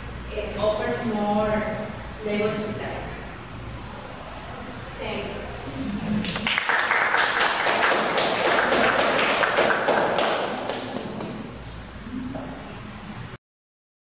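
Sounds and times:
audience clapping: 6.2s - 11.6s.

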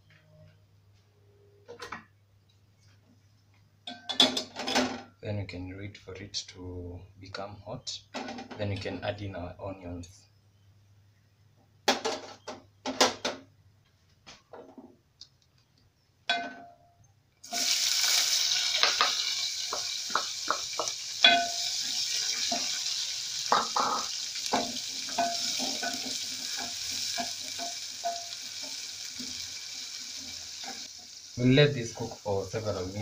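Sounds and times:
onions sizzling in hot oil: 17.4s - 33.0s.

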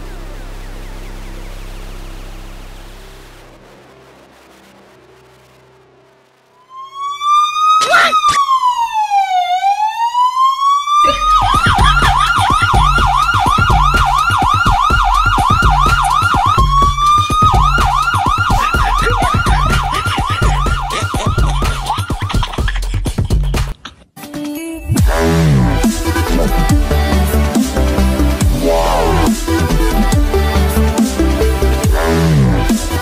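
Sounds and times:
siren wailing: 6.4s - 22.3s, 28.4s - 29.6s
siren yelping: 6.6s - 22.6s
pounding low beat: 11.1s - 23.7s, 25.0s - 30.5s.

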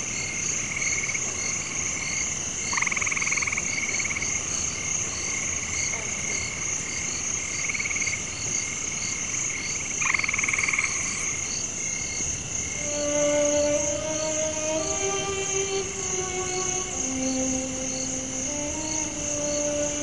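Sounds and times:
high-pitched insect drone: 12.6s - 20.0s.

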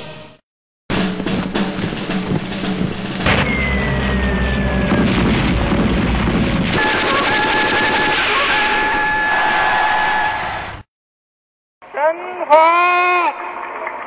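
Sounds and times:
deep explosion rumble: 3.2s - 7.4s
falling whistle: 3.3s - 5.1s, 6.8s - 10.5s
gunfire: 4.9s - 8.9s.

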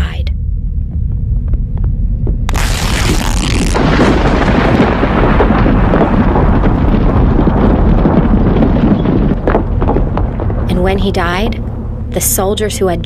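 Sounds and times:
rolling thunder rumble: 0.4s - 13.0s
thunder crash: 2.5s - 12.2s.

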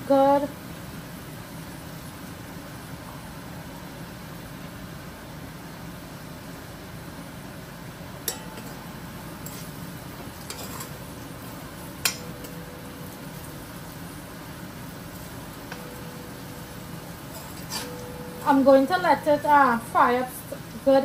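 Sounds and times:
steady low hum: 0.0s - 21.0s
metal spoon clinking on pot: 8.3s - 9.8s, 10.4s - 11.2s, 12.0s - 13.6s, 15.6s - 19.8s.

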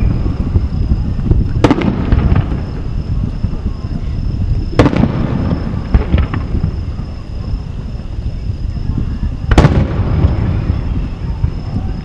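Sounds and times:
small firework pops: 0.0s - 3.6s, 4.4s - 6.8s, 9.2s - 12.0s
steady low rumble: 0.0s - 12.0s.

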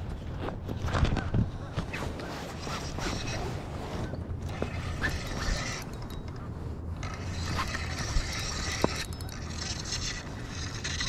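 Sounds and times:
fishing reel cranking: 7.0s - 11.0s.

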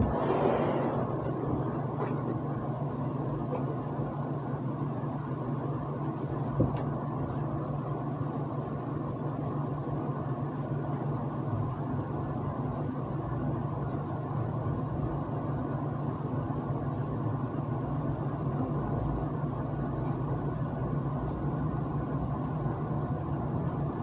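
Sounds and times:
low hum with faint hiss: 0.0s - 24.0s.

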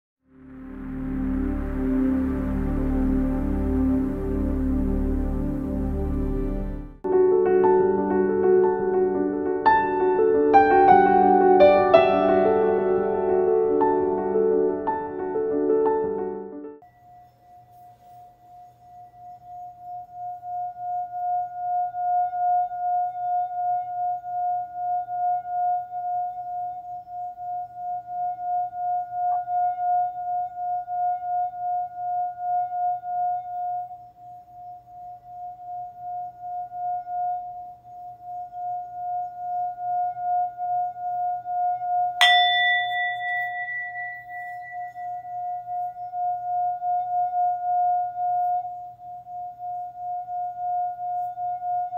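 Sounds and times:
singing bowl ringing: 16.8s - 51.9s
singing bowl struck: 42.1s - 50.7s.

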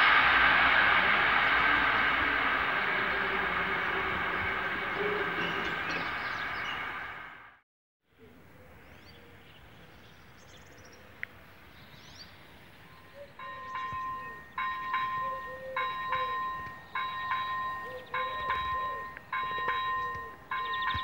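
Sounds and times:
level-crossing bell ringing: 2.8s - 6.8s, 13.4s - 21.0s.

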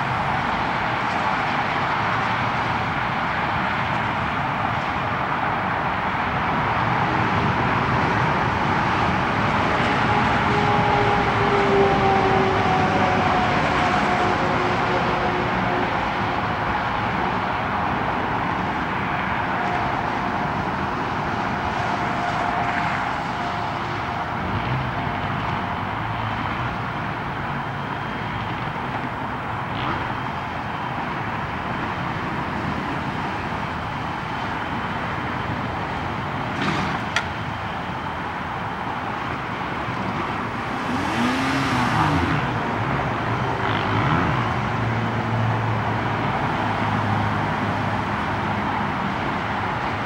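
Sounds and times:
roadside traffic: 0.0s - 50.0s
car passing close: 40.0s - 47.8s.

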